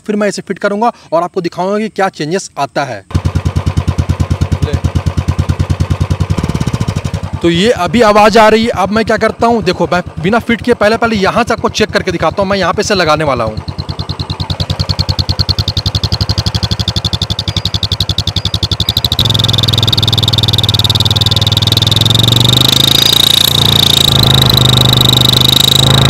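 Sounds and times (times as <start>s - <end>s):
motorcycle engine idling: 3.1s - 26.0s
exhaust turbo whistle: 13.4s - 26.0s.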